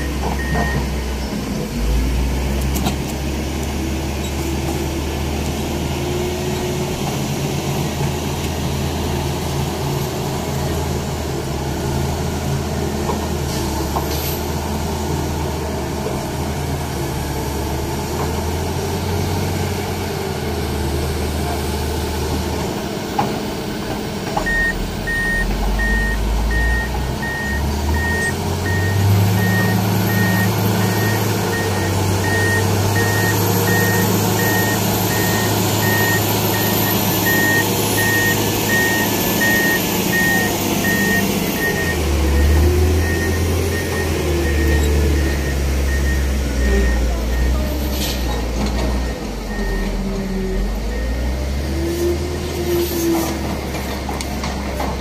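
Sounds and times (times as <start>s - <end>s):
heavy diesel engine running: 0.0s - 55.0s
rapid warning beeps: 24.5s - 47.6s.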